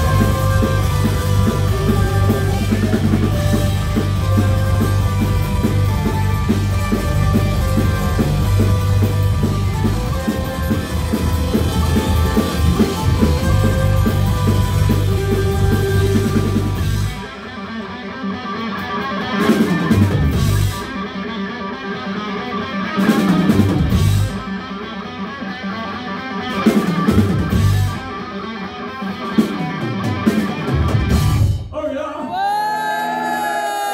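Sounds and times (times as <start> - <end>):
rock band playing: 0.0 - 33.9.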